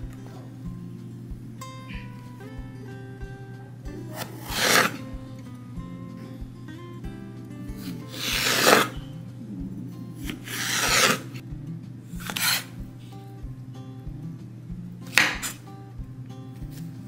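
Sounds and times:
soft background music with beat: 0.0s - 17.0s
knife slicing on cutting board: 4.1s - 5.1s, 7.8s - 9.0s, 10.2s - 11.4s, 12.2s - 12.8s, 15.1s - 15.6s.

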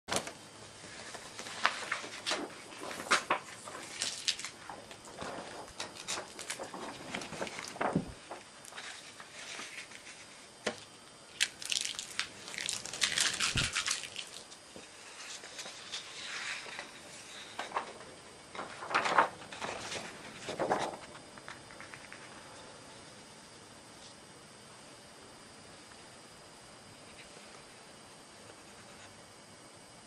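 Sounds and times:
rustling and crinkling handling: 0.1s - 22.5s.

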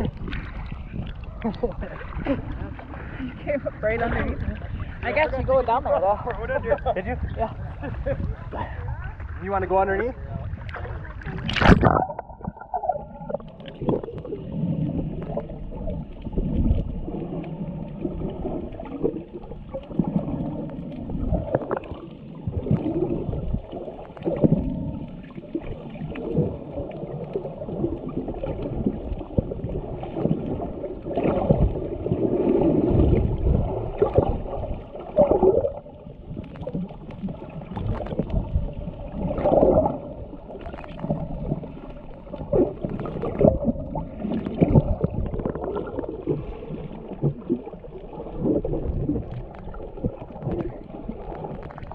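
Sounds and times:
underwater gurgling and sloshing: 0.0s - 51.9s
dull underwater thumps: 10.6s - 14.3s.

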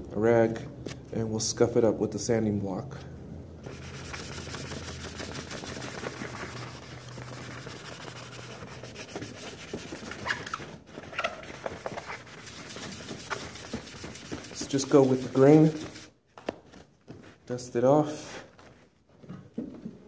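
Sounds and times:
sanding block rubbing wood: 3.7s - 10.4s, 11.4s - 16.1s.

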